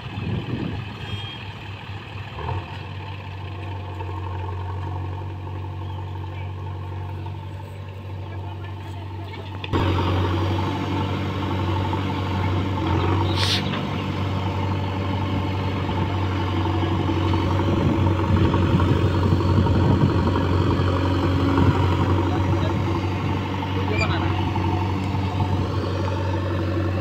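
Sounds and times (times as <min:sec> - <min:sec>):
backhoe diesel engine running: 0:00.0 - 0:27.0
high-pitched squeak: 0:23.9 - 0:24.3.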